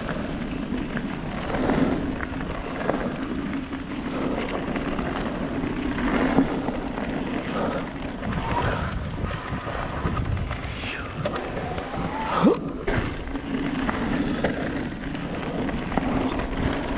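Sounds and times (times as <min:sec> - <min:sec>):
bike clicks and rattles: 0:00.0 - 0:16.9
tyre and air rush: 0:06.0 - 0:14.9.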